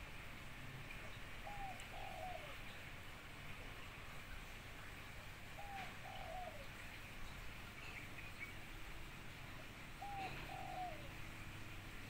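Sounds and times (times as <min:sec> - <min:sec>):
dove cooing: 0:01.4 - 0:02.6, 0:05.6 - 0:06.7, 0:10.0 - 0:11.2.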